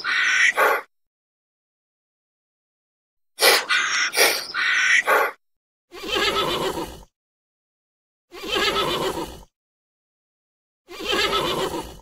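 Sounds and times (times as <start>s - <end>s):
horse whinnying: 5.9s - 7.1s, 8.3s - 9.4s, 10.9s - 12.0s.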